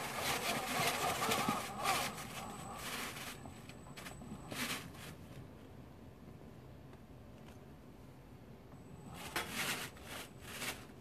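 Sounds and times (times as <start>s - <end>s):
toy tracked vehicle crawling: 0.0s - 5.0s
thin high whine: 0.0s - 5.2s
irregular scraping noise: 0.0s - 5.4s, 8.9s - 11.0s.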